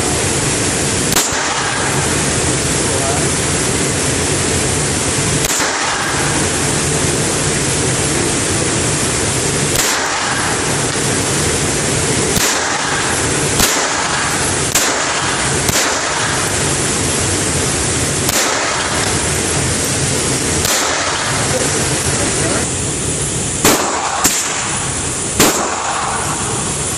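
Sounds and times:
loud rushing noise: 0.0 - 26.9
pistol shots: 1.1 - 2.4, 5.4 - 6.8, 9.1 - 22.2, 23.6 - 26.6.

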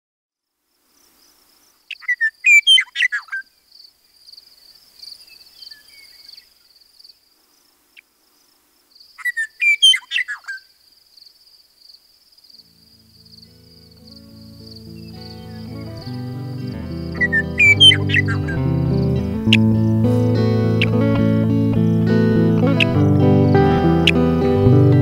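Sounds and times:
meadowlark singing: 1.9 - 3.4, 5.1 - 6.4, 9.2 - 10.6, 12.6 - 25.0.

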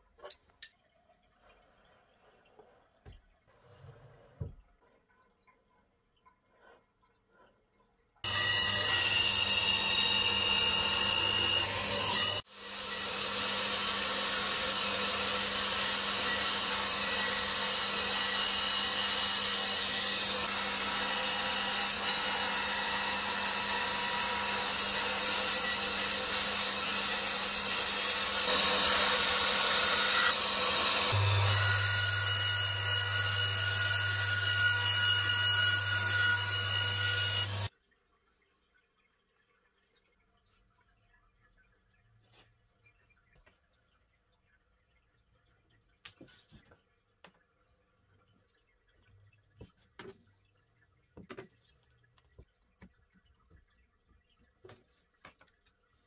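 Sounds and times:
band saw cutting wood: 8.2 - 37.7.

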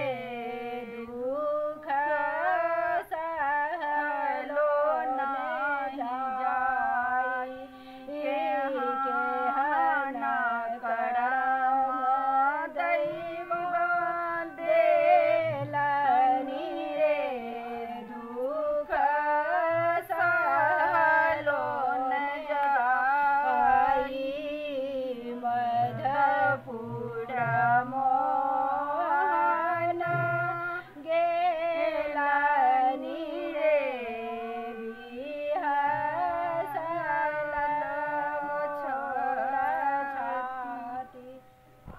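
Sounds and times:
women singing folk song: 0.0 - 41.9
singer breaths: 7.6 - 8.1.

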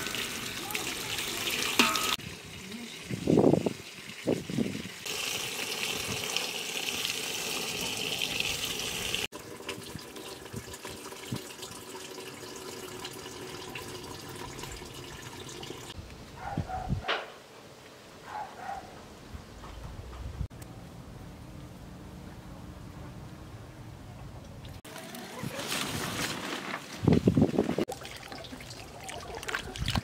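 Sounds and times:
water splashing into a metal basin: 0.0 - 16.0, 27.9 - 30.0.

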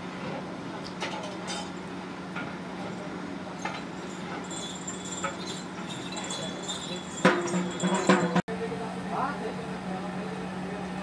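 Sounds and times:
metal ladles knocking on cooking pots: 3.6 - 8.4
loud metal clank: 7.2 - 8.4.

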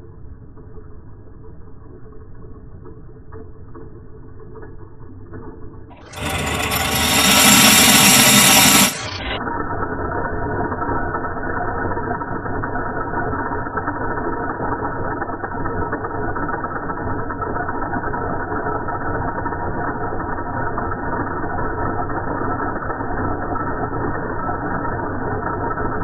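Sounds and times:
gear noise: 6.0 - 9.4
metal lathe droning: 6.1 - 9.4.

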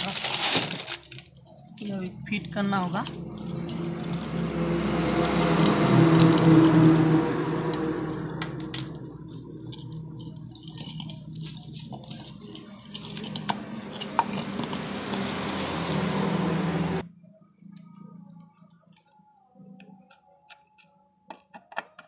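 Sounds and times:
steady low hum: 1.4 - 18.1.

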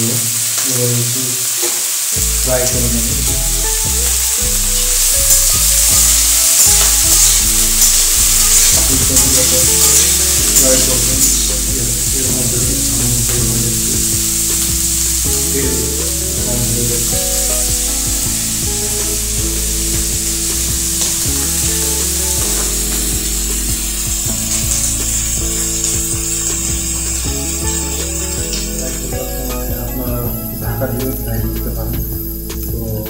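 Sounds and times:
vegetables sizzling in hot oil: 0.0 - 33.0.

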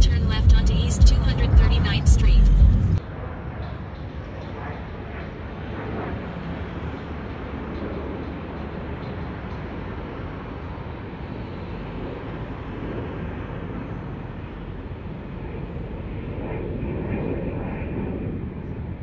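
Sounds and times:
car driving road noise: 0.0 - 3.0.

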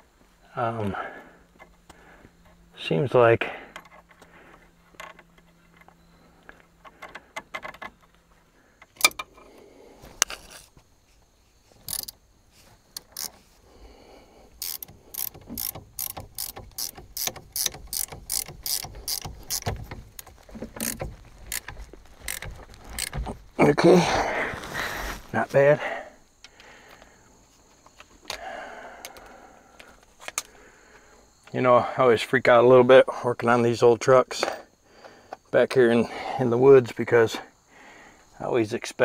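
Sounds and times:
ratchet wrench clicking: 11.9 - 12.2, 13.0 - 13.4, 14.6 - 23.2.

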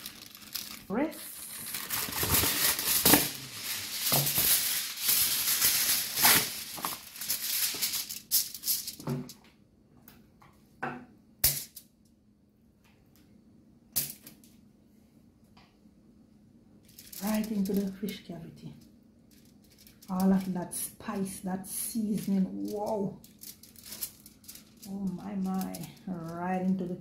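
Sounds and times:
aluminium foil crinkling: 0.0 - 9.4, 16.8 - 27.0.

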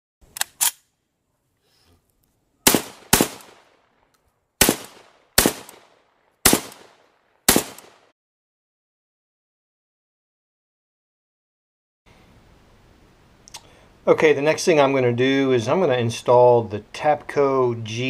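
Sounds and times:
gunshots with echo: 2.7 - 3.8, 4.6 - 8.1.

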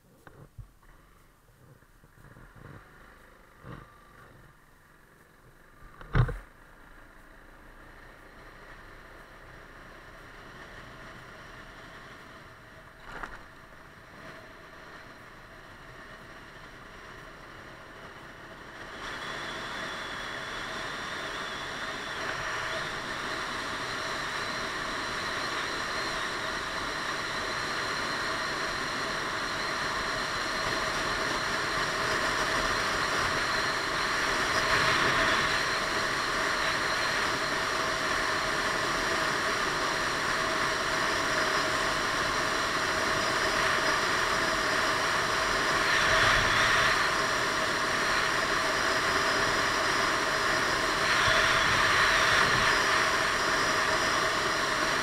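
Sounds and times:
scooter engine drone: 0.0 - 55.0
wind rush: 30.4 - 37.4, 43.3 - 54.2.

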